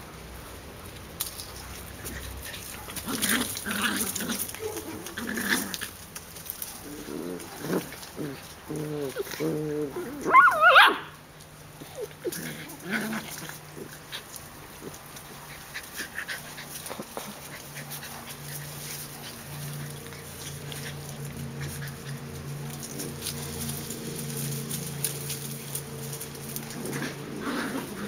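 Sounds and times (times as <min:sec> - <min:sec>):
puppy growling: 0:02.0 - 0:06.1, 0:06.7 - 0:11.1, 0:11.8 - 0:28.0
puppy yelping: 0:09.0 - 0:11.2
paws scratching in sand: 0:11.8 - 0:28.0.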